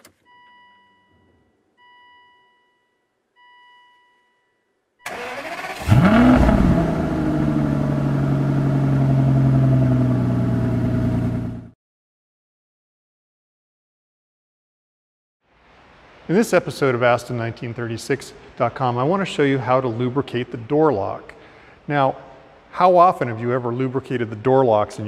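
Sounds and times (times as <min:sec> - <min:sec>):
car engine starting and idling: 0:05.0 - 0:11.7.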